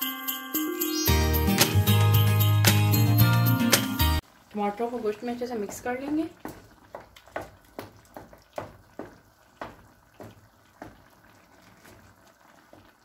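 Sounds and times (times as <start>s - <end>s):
wooden spoon stirring stew: 5.2s - 13.0s.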